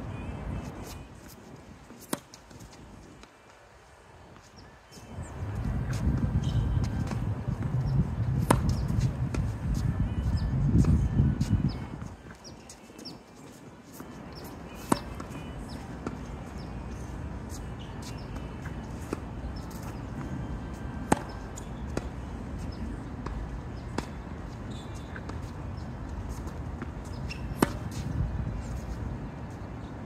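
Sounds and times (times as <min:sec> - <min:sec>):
tennis racket hitting ball: 0:27.2 - 0:28.1.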